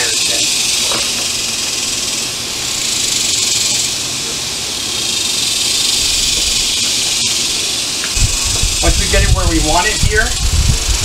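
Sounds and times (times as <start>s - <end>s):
loud high-pitched hiss: 0.0s - 11.0s
low rumble: 8.2s - 11.0s.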